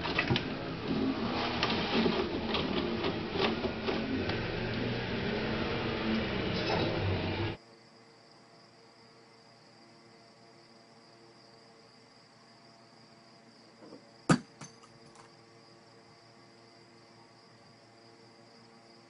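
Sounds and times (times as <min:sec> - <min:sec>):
object knocking on wooden dresser: 0:13.8 - 0:14.8.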